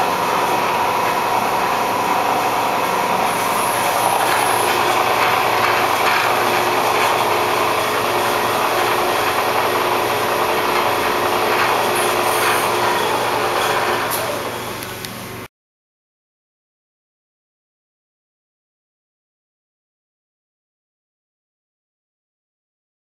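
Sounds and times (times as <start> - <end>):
milling machine whirring: 0.0 - 15.5
steady machine tones: 0.0 - 15.5.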